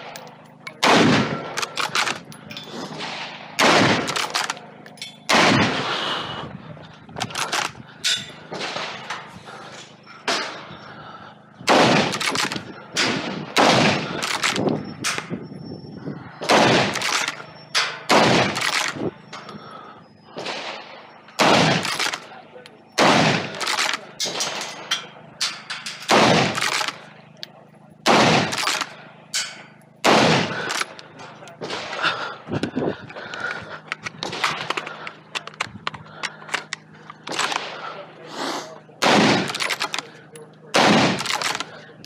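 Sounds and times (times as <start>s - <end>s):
rifle gunshots with echo: 0.0s - 6.0s, 8.5s - 9.3s, 11.7s - 15.3s, 16.4s - 19.0s, 20.4s - 22.3s, 23.0s - 24.9s, 25.5s - 27.4s, 28.0s - 31.0s, 36.8s - 38.1s, 39.0s - 40.1s, 40.7s - 41.8s
sharp clicks and clatter: 4.0s - 5.2s, 12.1s - 13.1s, 14.2s - 15.3s, 23.5s - 27.6s, 33.3s - 37.7s, 39.4s - 40.1s, 41.1s - 41.8s.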